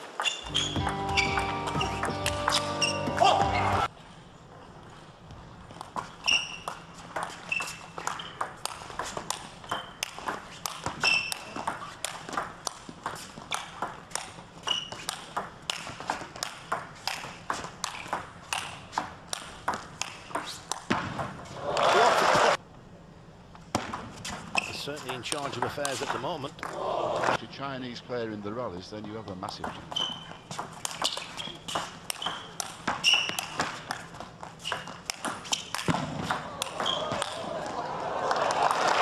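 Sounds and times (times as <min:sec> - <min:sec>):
shoes squeaking on floor: 0:00.0 - 0:03.9, 0:05.8 - 0:12.4, 0:14.5 - 0:15.3, 0:24.2 - 0:25.1, 0:29.2 - 0:37.4
crowd noise: 0:21.4 - 0:22.6, 0:36.0 - 0:39.0.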